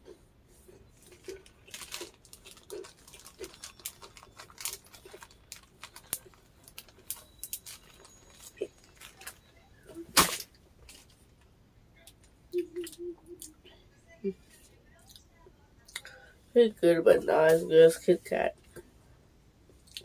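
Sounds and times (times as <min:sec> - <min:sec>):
chewing crunches and mouth clicks: 0:00.0 - 0:09.4, 0:19.8 - 0:20.0.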